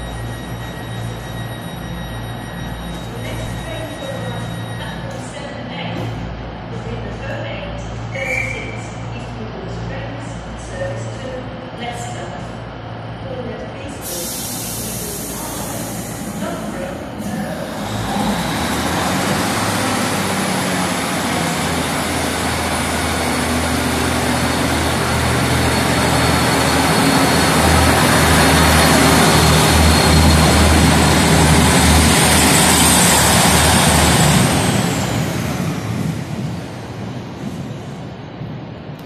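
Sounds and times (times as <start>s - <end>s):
diesel train engine whine: 0.0s - 39.0s
train wheels rumbling: 13.8s - 39.0s.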